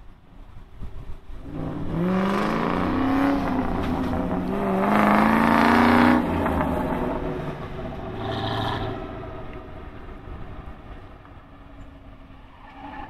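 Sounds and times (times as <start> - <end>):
car engine accelerating hard: 1.4 - 10.9.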